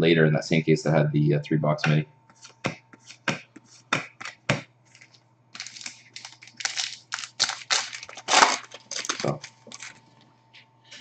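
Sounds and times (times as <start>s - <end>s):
cards rustling and sliding: 2.4s - 10.0s.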